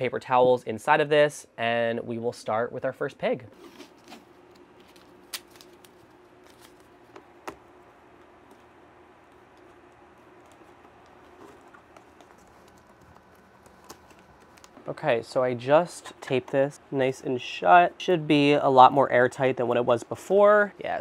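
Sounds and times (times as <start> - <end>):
low steady hum: 0.0 - 21.0
tape being handled: 3.6 - 14.9.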